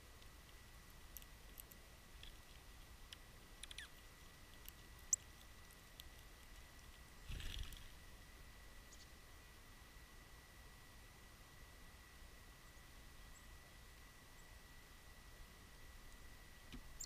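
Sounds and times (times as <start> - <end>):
small ticks: 0.0 - 8.0
faint high whine: 0.0 - 17.0.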